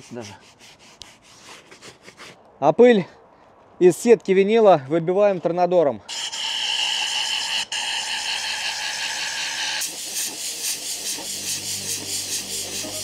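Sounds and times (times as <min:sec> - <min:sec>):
compressed-air gun hissing: 0:09.8 - 0:13.0.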